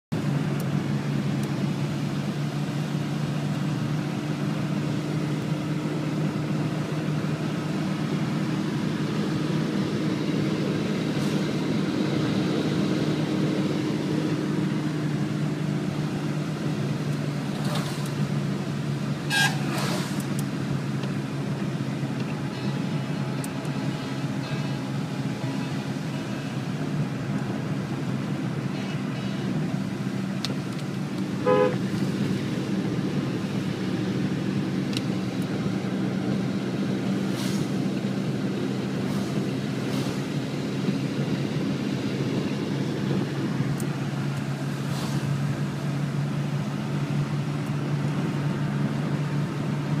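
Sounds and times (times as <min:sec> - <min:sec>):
engine and tyre drone: 0:00.1 - 0:50.0
truck swishing past: 0:19.2 - 0:20.4, 0:35.3 - 0:47.4
vehicle horn toot: 0:19.3 - 0:19.6, 0:31.4 - 0:31.8.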